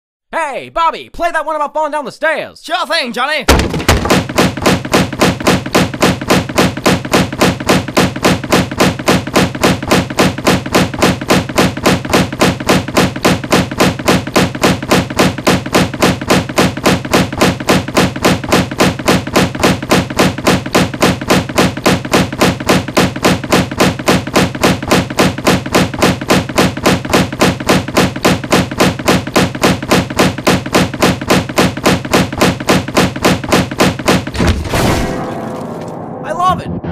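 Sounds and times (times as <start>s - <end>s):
body tumbling down stairs: 3.5s - 4.2s.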